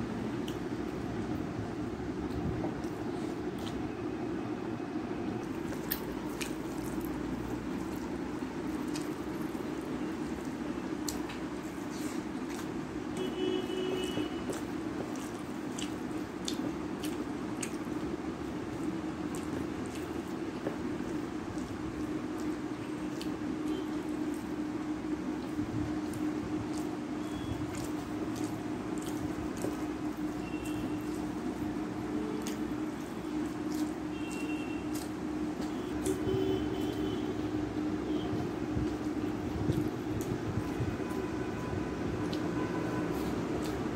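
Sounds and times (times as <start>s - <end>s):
steady low hum: 0.0s - 43.9s
mouth smacks while chewing: 2.2s - 4.0s, 5.4s - 12.8s, 14.0s - 41.2s, 42.2s - 43.9s
rice squished by hand: 5.4s - 43.9s
fingers squishing rice on a plate: 18.8s - 36.2s.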